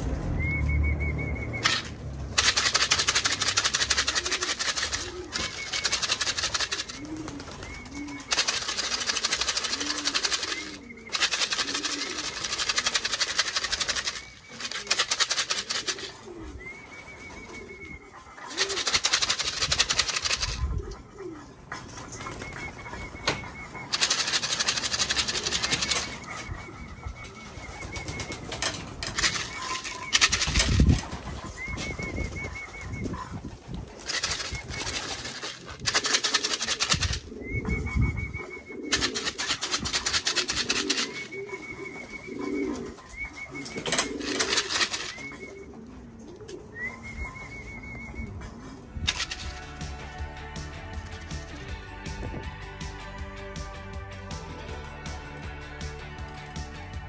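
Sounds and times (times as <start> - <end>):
rushing noise: 0.0 - 4.0
pigeons cooing: 0.0 - 52.3.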